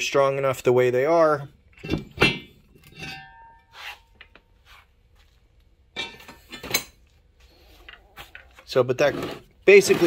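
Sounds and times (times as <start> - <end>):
metallic ring: 1.8 - 4.0.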